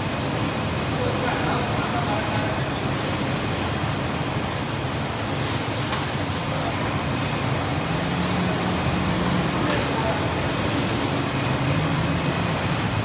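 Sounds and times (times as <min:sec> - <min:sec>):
high hiss: 0:05.3 - 0:11.3.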